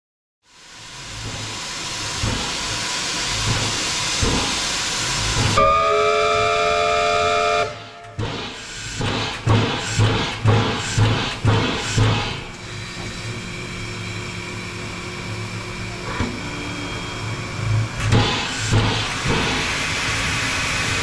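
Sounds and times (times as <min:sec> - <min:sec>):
steam hissing: 0:00.5 - 0:05.9, 0:07.4 - 0:13.4, 0:16.3 - 0:21.0
steam locomotive whistle blast: 0:05.6 - 0:08.2.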